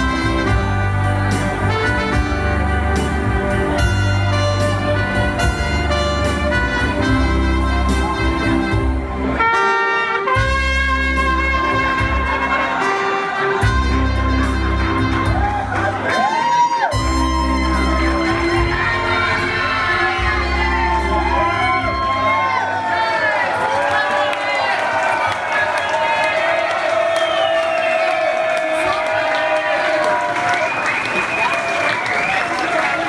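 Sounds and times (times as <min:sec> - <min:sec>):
bass line: 0:00.0 - 0:09.7, 0:10.4 - 0:16.1, 0:16.9 - 0:22.8
saxophone: 0:00.0 - 0:22.8
keyboard: 0:00.0 - 0:23.6
trumpets: 0:00.0 - 0:33.0.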